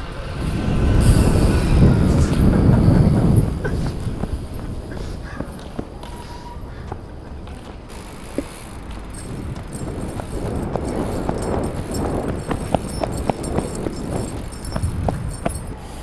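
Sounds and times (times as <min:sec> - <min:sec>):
wind rushing: 0:00.0 - 0:05.9, 0:09.2 - 0:16.0
running footfalls on dirt: 0:07.6 - 0:15.6.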